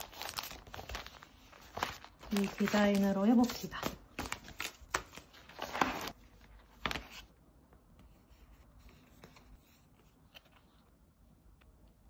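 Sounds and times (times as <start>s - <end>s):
sticker sheets rustling: 0.0s - 7.3s.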